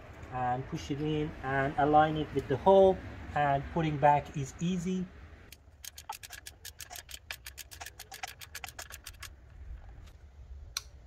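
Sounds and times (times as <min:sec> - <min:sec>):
ratchet clicking: 0:05.5 - 0:09.3.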